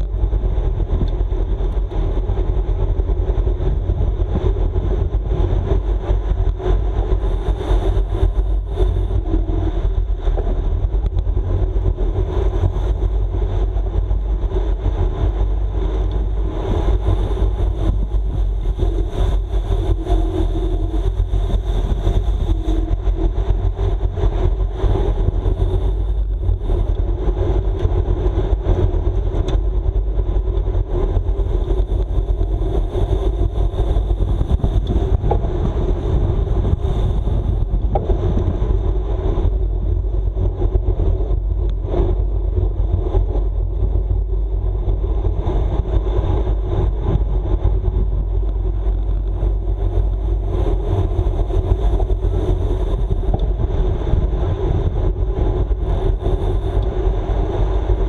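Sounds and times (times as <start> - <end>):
low road rumble: 0.0 - 58.0
wind rushing over microphone: 0.0 - 58.0.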